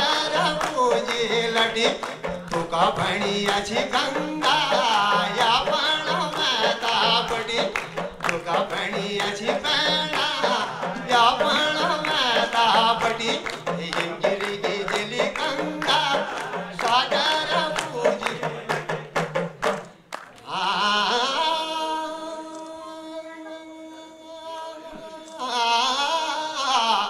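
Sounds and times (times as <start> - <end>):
man singing folk song: 0.0 - 18.8
hand claps: 0.0 - 20.6.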